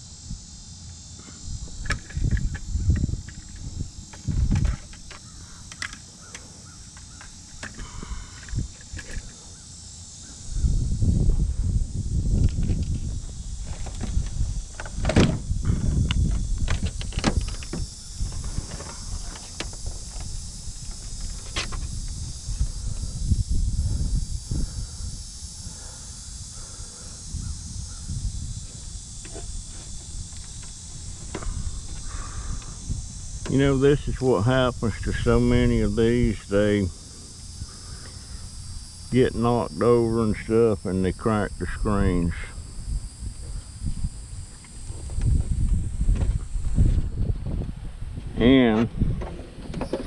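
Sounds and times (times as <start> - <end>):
high insect drone: 0.0 - 50.0
insect chirps and clicks: 0.0 - 50.0
steady high hiss: 0.0 - 50.0
crows cawing: 5.2 - 8.4, 32.0 - 32.7, 37.7 - 38.5.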